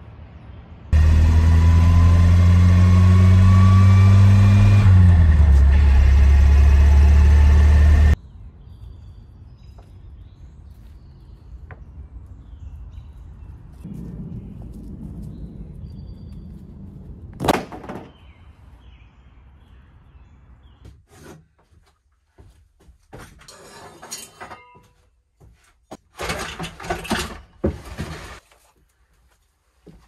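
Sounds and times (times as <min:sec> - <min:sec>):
low outdoor rumble: 0:13.1 - 0:17.5
birds chirping: 0:18.0 - 0:21.0.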